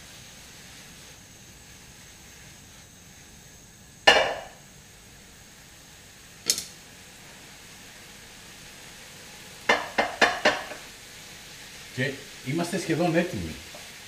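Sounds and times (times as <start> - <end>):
faint steady hiss: 0.0 - 14.0
utensil clanking on wok: 9.7 - 10.9.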